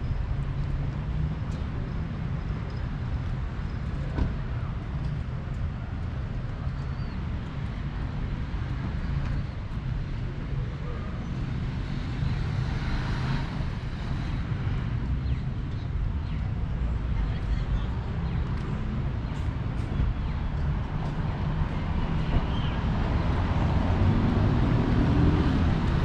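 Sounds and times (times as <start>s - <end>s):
street traffic rumble: 0.0s - 26.0s
vehicle passing close by: 22.7s - 26.0s.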